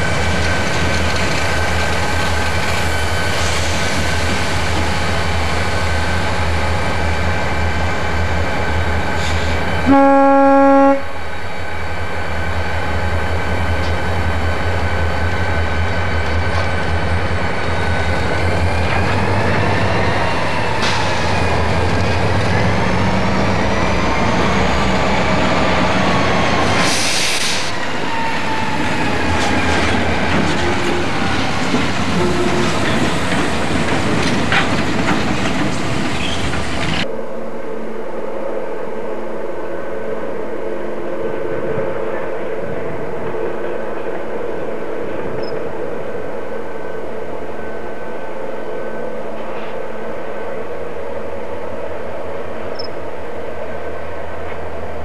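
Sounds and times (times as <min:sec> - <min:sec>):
train wheel clatter: 0:00.0 - 0:05.2, 0:29.0 - 0:37.1
diesel locomotive engine rumble: 0:00.0 - 0:38.2.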